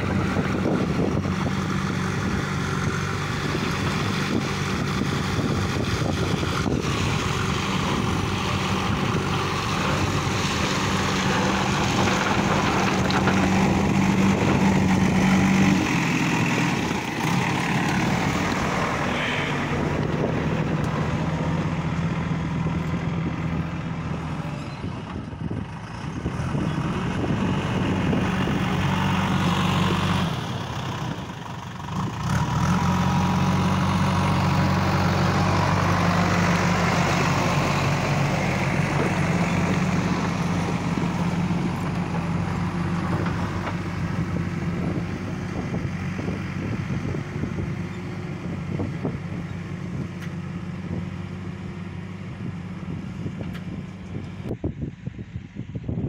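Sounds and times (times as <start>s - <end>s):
diesel engine running under load: 0.0s - 56.0s
rock grinding: 9.6s - 15.9s.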